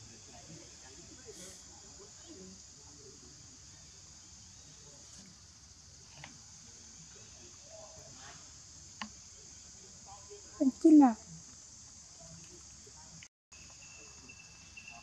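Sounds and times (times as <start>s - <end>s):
high-pitched insect drone: 13.5s - 15.0s.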